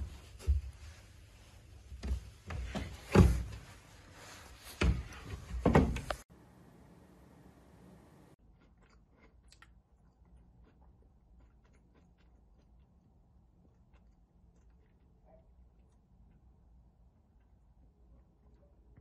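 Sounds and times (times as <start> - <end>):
faint steady hiss: 0.0 - 8.4.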